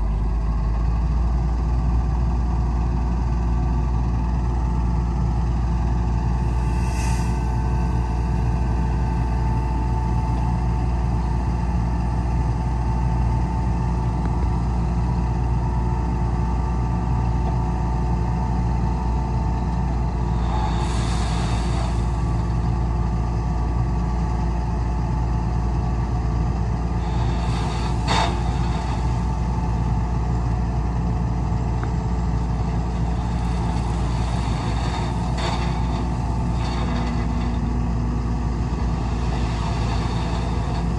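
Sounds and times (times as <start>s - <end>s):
diesel machinery engine drone: 0.0s - 40.9s
hissing bursts: 20.4s - 22.3s.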